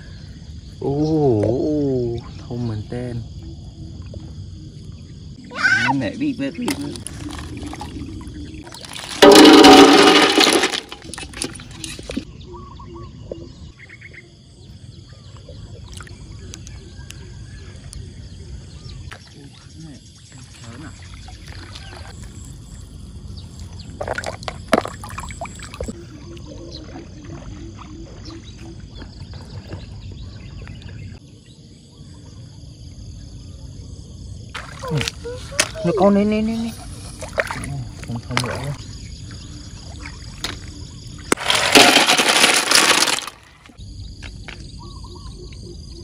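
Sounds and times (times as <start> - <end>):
shells clattering on metal basin: 8.7 - 12.2, 41.4 - 43.4
faint chirps and ticks: 15.0 - 18.4.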